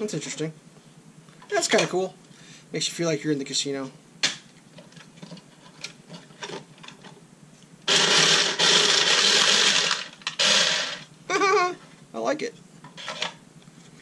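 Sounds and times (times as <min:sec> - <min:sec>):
card shuffler whirring: 0:07.8 - 0:11.1.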